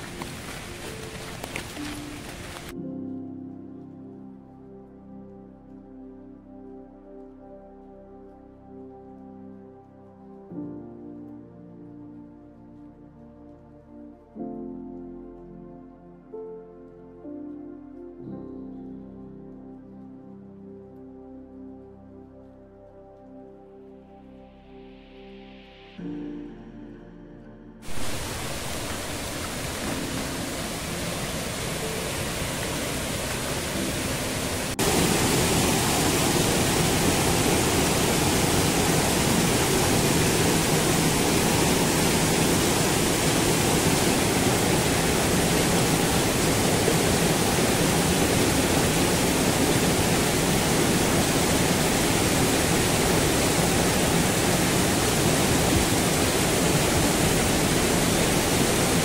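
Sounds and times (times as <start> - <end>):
stream rushing over rocks: 0.0 - 2.8, 27.9 - 59.0.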